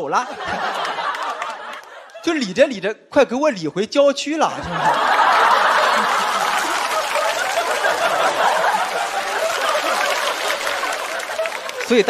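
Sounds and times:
audience laughing: 0.0 - 2.4, 4.6 - 12.0
audience clapping: 0.4 - 2.2, 4.8 - 12.0.

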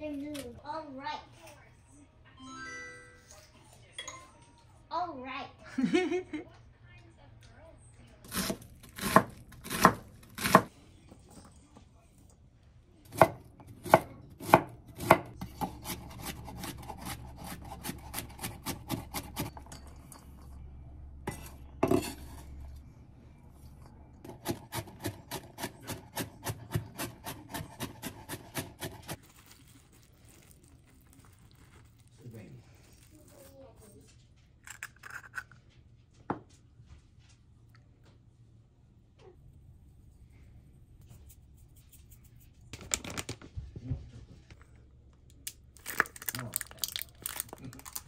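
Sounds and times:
knife chopping on wooden board: 8.3 - 10.7, 13.1 - 19.6, 24.2 - 29.2.

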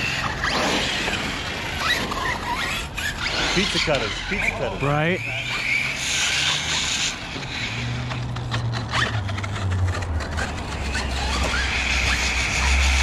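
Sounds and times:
rc car motor whine: 0.0 - 13.0
ticks and rattles: 6.8 - 12.4.

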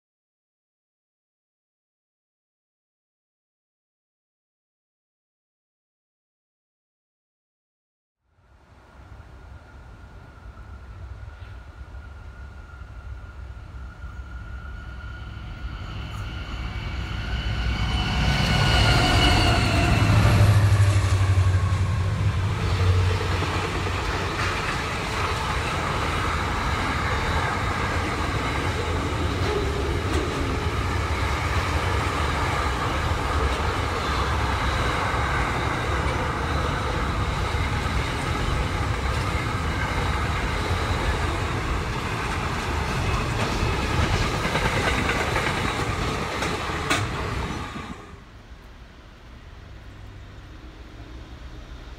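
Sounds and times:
diesel locomotive engines humming: 8.8 - 51.9
train wheels rumbling on rails: 9.1 - 51.9.

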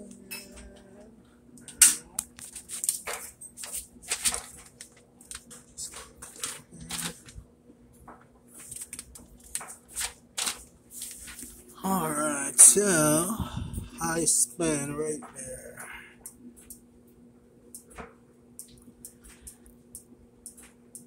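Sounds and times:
faint steady hum: 0.0 - 21.0
paper pages flipped by hand: 2.2 - 7.4, 8.5 - 11.6.

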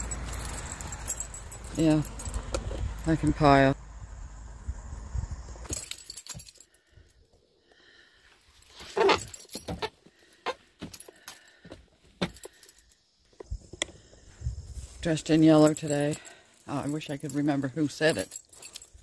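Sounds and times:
light metallic clinks: 0.0 - 3.2, 5.7 - 7.3, 12.2 - 13.2, 15.3 - 19.0.

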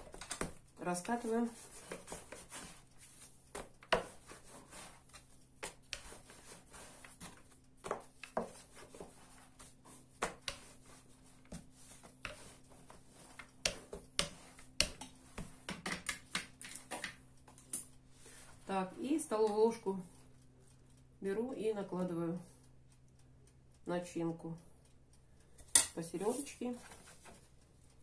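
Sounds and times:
rolling pin rolling dough: 0.0 - 17.1.

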